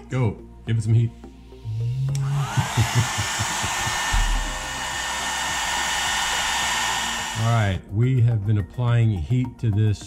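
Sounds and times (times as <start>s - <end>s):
hair dryer running: 1.7s - 7.8s.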